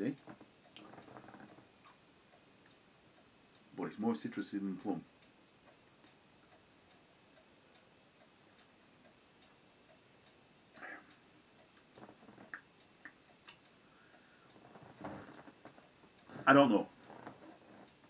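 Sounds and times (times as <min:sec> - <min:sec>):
faint regular ticking: 0:00.0 - 0:18.0.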